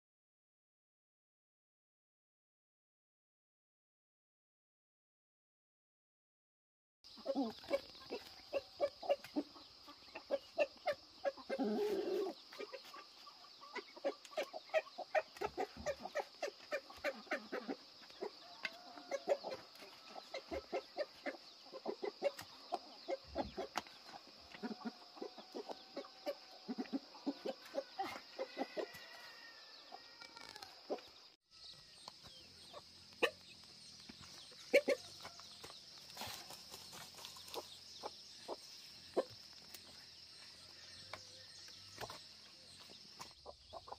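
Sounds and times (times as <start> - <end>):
chickens clucking: 7.1 - 31.3, 31.9 - 43.9.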